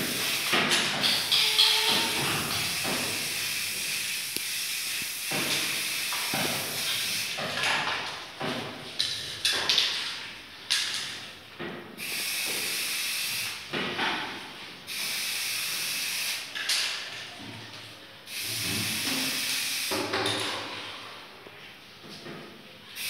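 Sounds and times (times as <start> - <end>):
spray paint can hissing: 0.0 - 7.4, 18.3 - 19.9.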